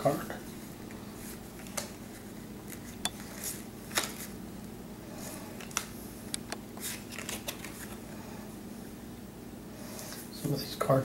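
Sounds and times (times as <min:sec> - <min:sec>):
cards rustling and clicking: 0:05.6 - 0:08.0.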